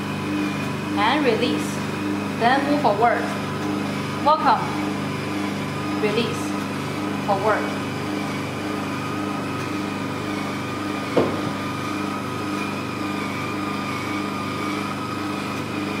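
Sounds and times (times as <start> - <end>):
machine humming with regular pulse: 0.0 - 16.0.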